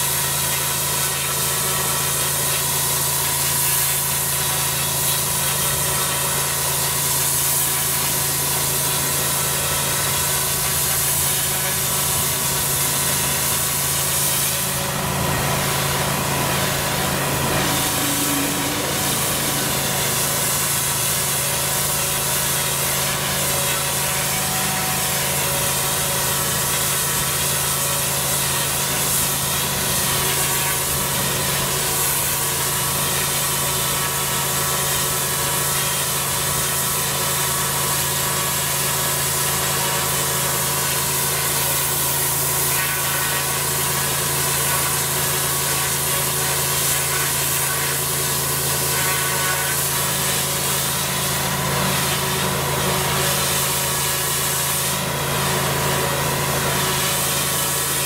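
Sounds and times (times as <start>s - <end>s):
pressure washer drone: 0.0s - 58.0s
water jet hissing on paving: 0.0s - 58.0s.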